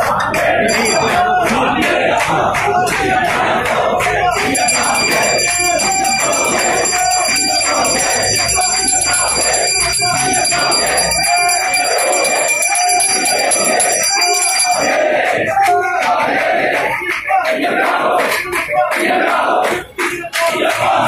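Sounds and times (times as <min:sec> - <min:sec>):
crowd of voices: 0:00.0 - 0:21.0
temple bell ringing: 0:00.6 - 0:01.5, 0:04.3 - 0:15.1.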